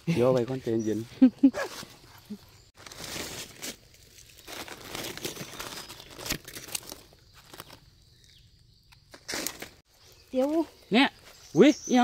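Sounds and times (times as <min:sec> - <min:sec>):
dry leaves crunching: 0:02.8 - 0:08.3.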